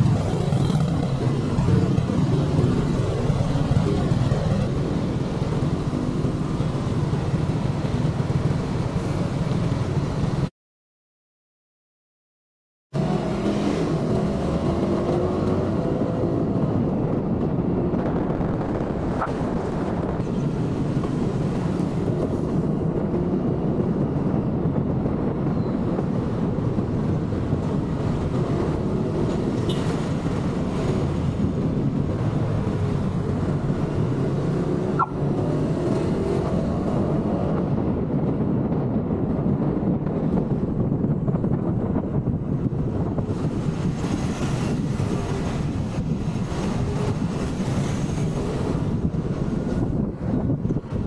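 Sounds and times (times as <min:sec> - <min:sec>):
motorcycle engine and road noise: 0:00.0 - 0:10.5, 0:13.0 - 0:51.0.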